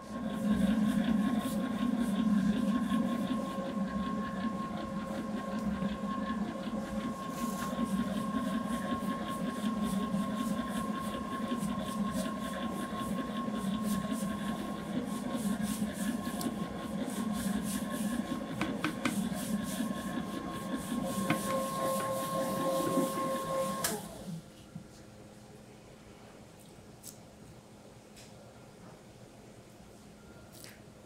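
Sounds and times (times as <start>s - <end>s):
stand mixer motor hum: 0.0s - 24.4s.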